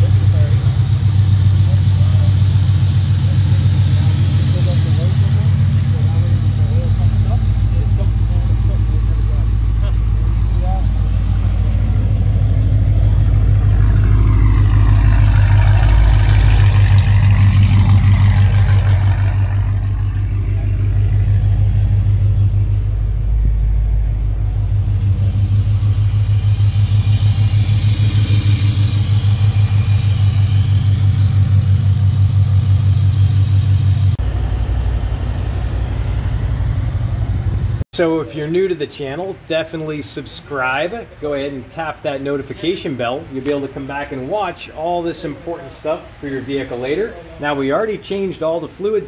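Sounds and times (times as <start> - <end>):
car engine idling: 0.0 - 38.2.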